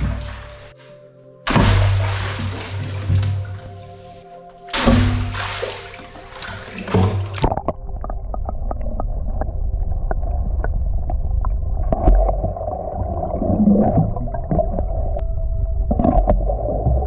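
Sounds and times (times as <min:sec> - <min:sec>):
underwater clicks and knocks: 0:01.5 - 0:03.7, 0:04.7 - 0:09.5
underwater rumble of moving water: 0:04.9 - 0:17.0.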